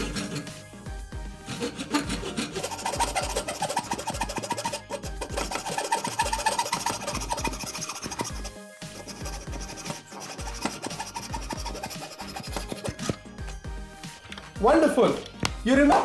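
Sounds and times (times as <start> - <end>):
pull saw cutting wood: 0.0 - 0.8, 1.4 - 13.2
background music: 0.0 - 16.0.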